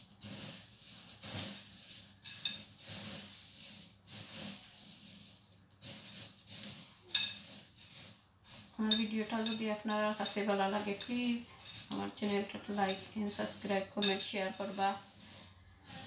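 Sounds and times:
puffed rice rustling in glass bowl: 0.0s - 16.0s.

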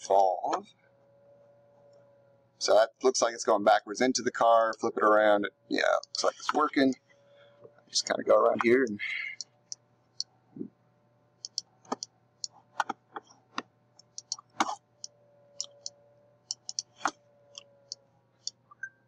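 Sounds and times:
faint steady hum: 0.0s - 19.0s
computer mouse clicking: 11.5s - 14.7s, 16.5s - 18.6s.

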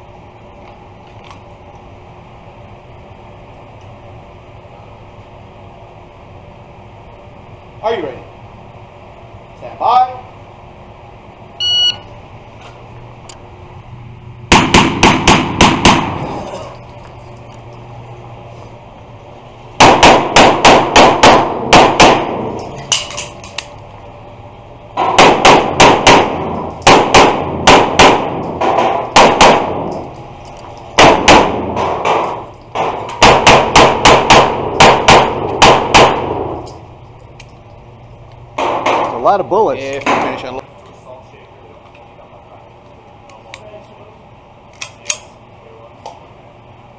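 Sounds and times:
shot timer beep: 11.6s - 12.1s
pistol shots echoing indoors: 14.5s - 16.3s, 19.8s - 23.3s, 25.0s - 30.2s, 30.9s - 36.8s, 38.6s - 39.2s.

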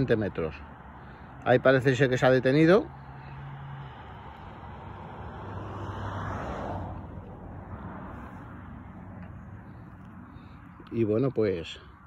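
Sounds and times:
outdoor background noise: 0.0s - 12.0s
motor vehicle passing: 2.0s - 11.1s.

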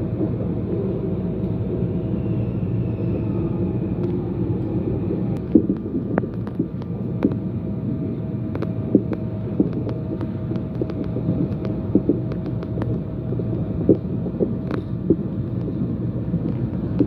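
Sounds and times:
train rumble and hum: 0.0s - 17.0s.

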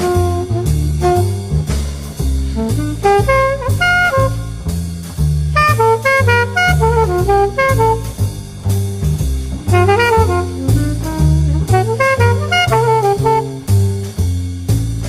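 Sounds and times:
saxophone melody: 0.0s - 1.7s, 2.5s - 4.7s, 5.5s - 8.4s, 9.6s - 13.9s
bass line: 0.0s - 15.0s
drum kit: 0.0s - 15.0s.

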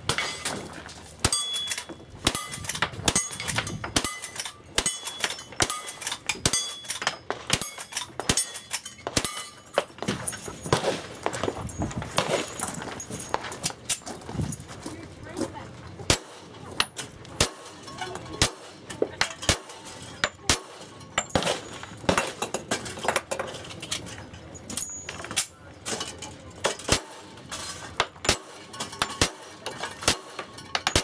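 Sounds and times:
gunshots: 10.7s - 11.4s, 12.2s - 12.6s, 20.5s - 22.4s.

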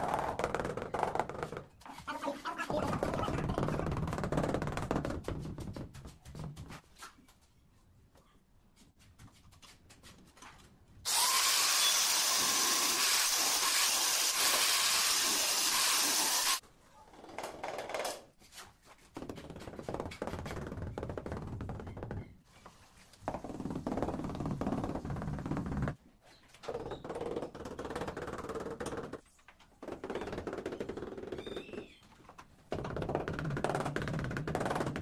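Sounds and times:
angle grinder cutting tile: 11.1s - 16.6s.

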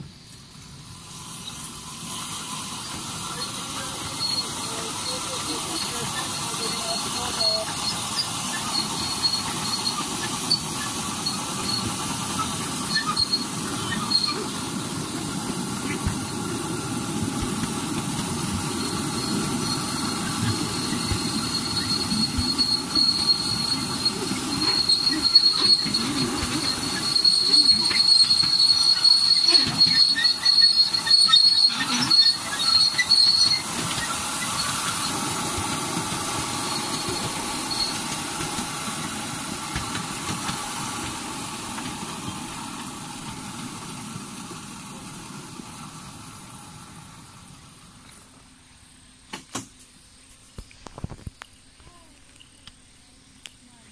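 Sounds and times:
train wheels rumbling on rails: 0.0s - 48.5s
high wheel squeal: 1.4s - 16.5s, 18.1s - 39.1s.

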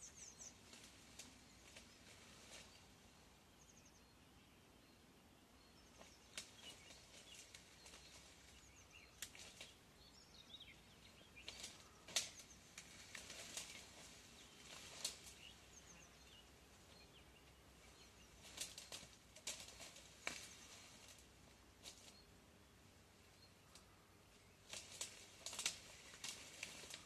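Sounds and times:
small birds chirping: 0.0s - 27.0s
sharp snaps and cracks in reeds: 0.5s - 2.8s, 6.0s - 9.8s, 11.4s - 15.7s, 18.3s - 22.2s, 23.6s - 23.9s, 24.6s - 27.0s.

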